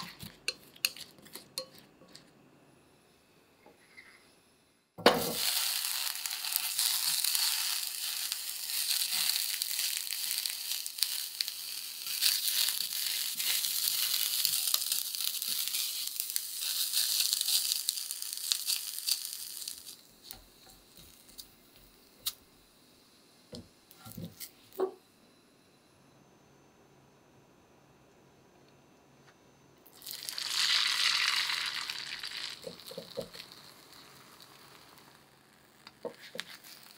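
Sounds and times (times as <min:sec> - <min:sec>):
sausages sizzling in a frying pan: 0:05.0 - 0:22.3, 0:29.9 - 0:36.9.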